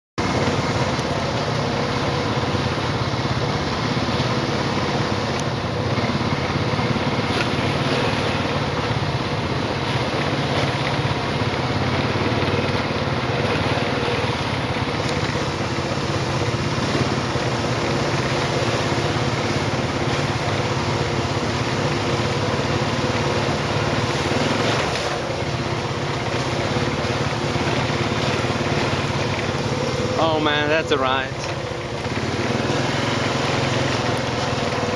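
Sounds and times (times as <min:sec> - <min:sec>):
broad rushing noise: 0:00.2 - 0:34.9
quad bike engine running: 0:00.2 - 0:34.9.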